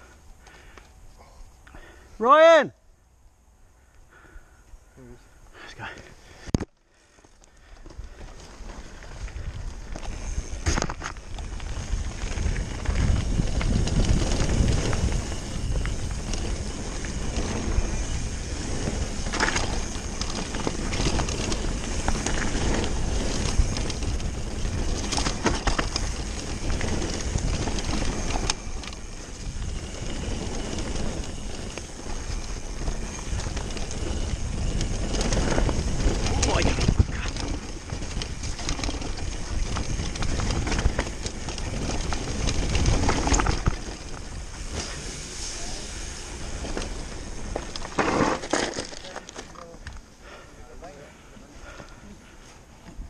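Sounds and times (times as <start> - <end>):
tyre noise on gravel: 5.8 - 53.0
wind rumble on microphone: 7.9 - 48.4
bike knocking over bumps: 46.5 - 50.0.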